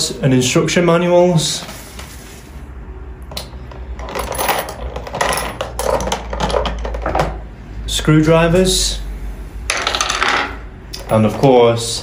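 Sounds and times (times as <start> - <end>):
metal tools clinking in plastic drawer: 4.0 - 7.4.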